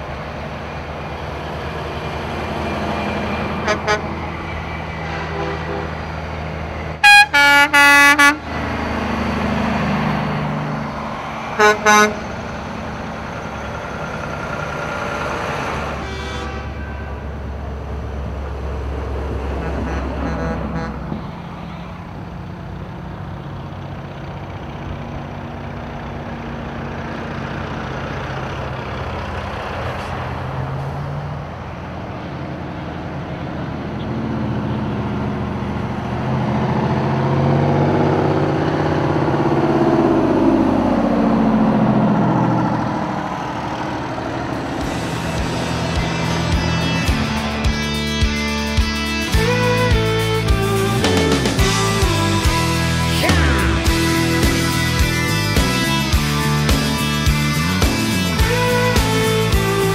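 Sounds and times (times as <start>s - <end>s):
diesel trucks driving past: 0.0s - 59.9s
truck air horns blasting: 3.2s - 4.3s, 5.0s - 6.2s, 7.0s - 8.6s, 11.5s - 12.5s, 15.3s - 17.6s, 19.4s - 21.7s, 44.4s - 57.0s, 58.3s - 59.9s.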